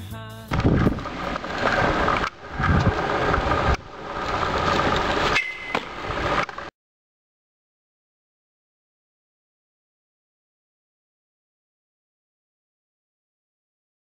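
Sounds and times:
scooter wheels rolling on asphalt: 0.5s - 6.7s
high squeal: 4.6s - 6.1s.

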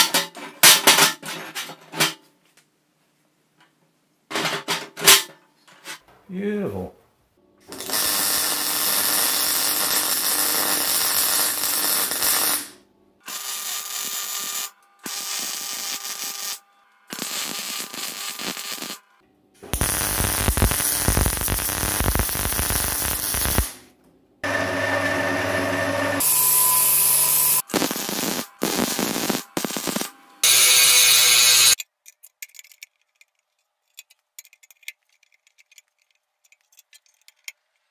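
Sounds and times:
arc welding hissing and crackling: 7.7s - 19.1s, 19.7s - 23.9s, 26.2s - 31.8s
angle grinder grinding steel: 24.4s - 27.6s, 28.7s - 31.8s.

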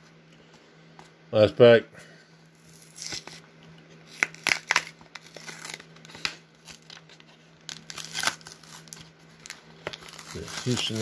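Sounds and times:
plastic wrapper tearing and crinkling: 2.5s - 3.4s, 4.1s - 11.0s.

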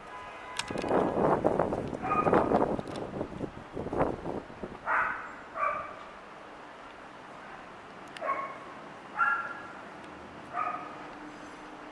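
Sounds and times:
dog barking: 2.0s - 2.4s, 4.9s - 6.0s, 8.2s - 8.6s, 9.2s - 9.7s, 10.5s - 11.0s.

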